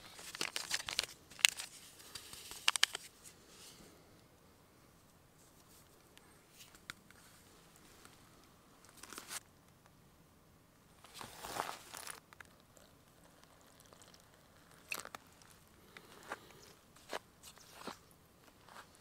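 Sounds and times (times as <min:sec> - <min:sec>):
crunchy rustling: 0:00.0 - 0:03.8, 0:11.0 - 0:19.0.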